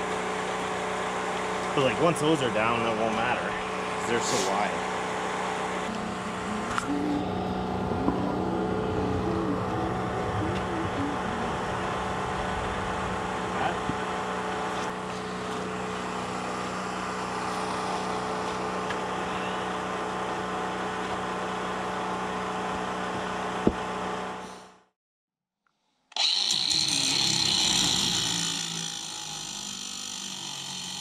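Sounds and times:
engine running steadily: 0.0s - 24.7s.

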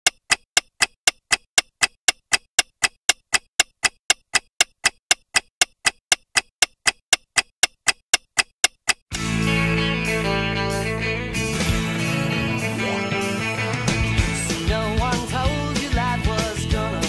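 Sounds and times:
clock-like ticking: 0.0s - 9.1s.

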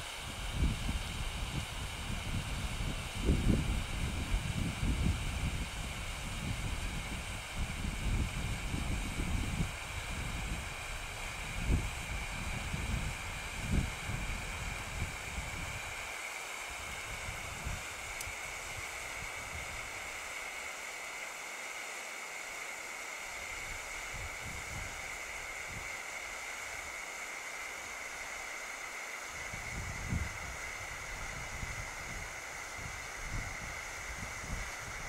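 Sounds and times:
wind rumble on microphone: 0.0s - 16.0s, 16.7s - 20.1s, 23.5s - 25.9s, 29.3s - 35.0s
hand flare burning with hiss: 0.0s - 35.0s.

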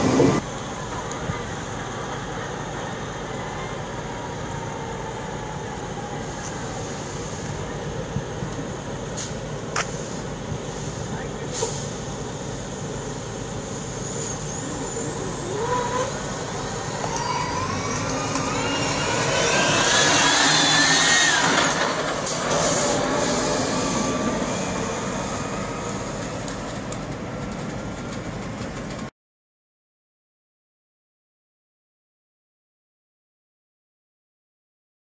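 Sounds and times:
tyre and road noise: 0.0s - 29.1s
electric drive whine: 15.2s - 27.0s.

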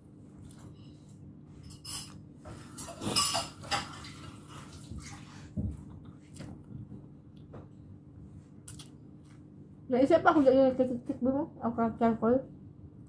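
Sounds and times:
metal spoon scraping a plate: 1.6s - 3.9s.

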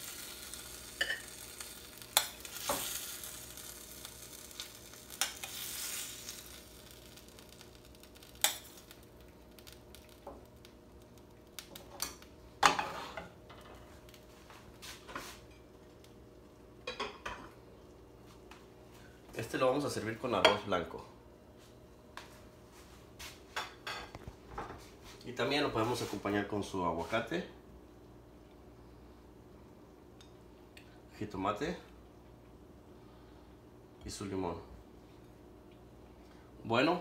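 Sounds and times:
sauce sizzling softly: 0.0s - 37.0s
metal spoon scraping in skillet: 0.1s - 6.6s.

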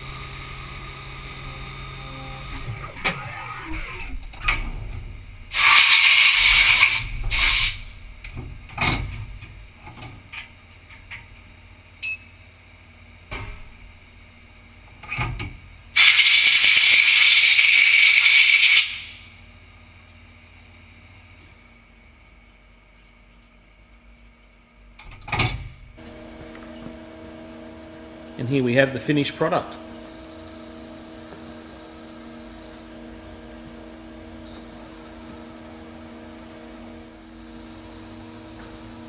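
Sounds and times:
milling machine humming: 0.0s - 9.8s, 26.0s - 39.0s
compressed air blasts: 5.5s - 8.0s, 16.0s - 19.2s.

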